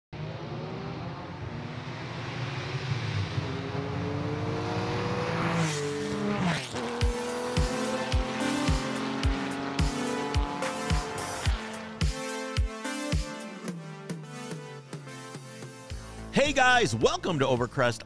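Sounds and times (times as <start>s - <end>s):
car engine accelerating: 0.1s - 13.0s
music with kick-drum beat: 7.0s - 16.3s.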